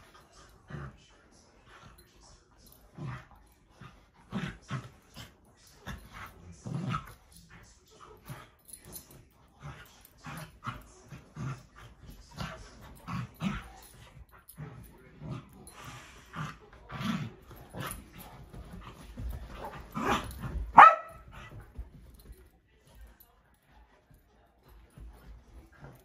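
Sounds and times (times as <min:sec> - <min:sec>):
dogs growling and barking: 0:02.6 - 0:07.6, 0:08.2 - 0:21.8
loud dog bark: 0:20.8 - 0:21.2.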